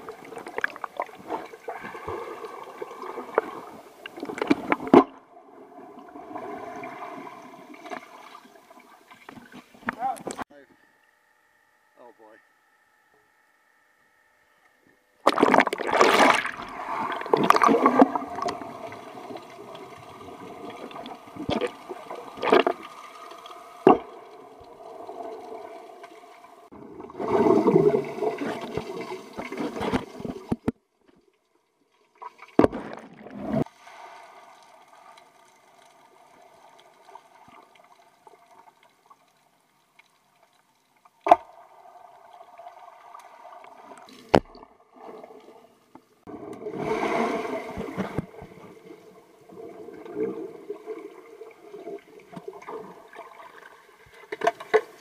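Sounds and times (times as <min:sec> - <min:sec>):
rush of bubbles: 0:15.3 - 0:24.2, 0:26.7 - 0:30.5, 0:32.6 - 0:35.2, 0:46.3 - 0:54.0.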